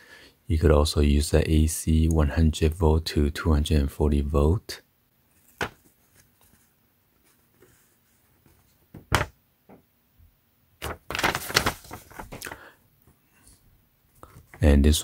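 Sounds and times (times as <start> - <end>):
paper rustling: 5.4 - 8.8, 10.8 - 12.7.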